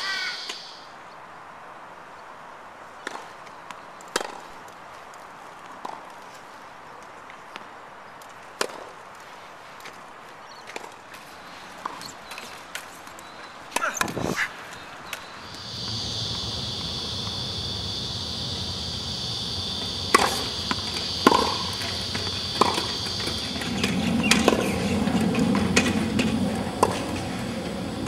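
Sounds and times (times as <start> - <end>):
insects droning: 0.0 - 1.0, 15.2 - 28.0
low rumble: 15.4 - 28.0
tennis ball hits and bounces: 20.1 - 27.4.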